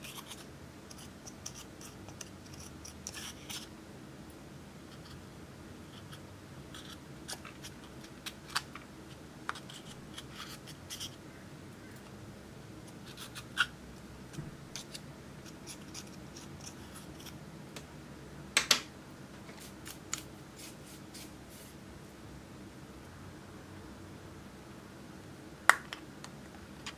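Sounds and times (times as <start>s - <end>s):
metal pick scraping eyeshadow: 0.0s - 3.7s.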